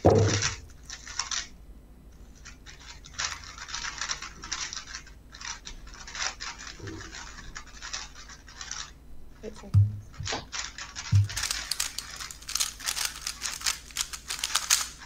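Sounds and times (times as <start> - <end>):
puzzle cubes clicking and clattering: 0.0 - 1.5, 2.4 - 9.0, 10.1 - 15.0
soft knock: 9.8 - 10.4.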